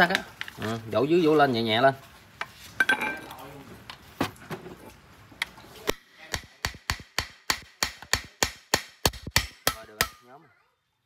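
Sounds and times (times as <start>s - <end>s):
hammer tapping on metal: 6.3s - 10.3s.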